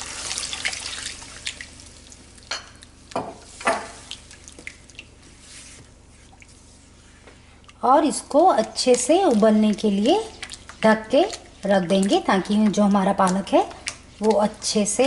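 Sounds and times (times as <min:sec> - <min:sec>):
water pouring into a pan: 0:00.0 - 0:01.8.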